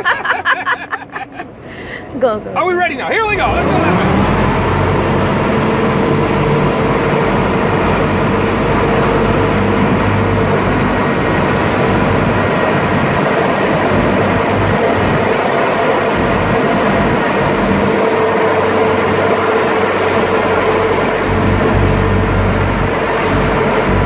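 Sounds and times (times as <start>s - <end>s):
boat engine droning: 0.0s - 24.0s
water rushing: 1.5s - 24.0s.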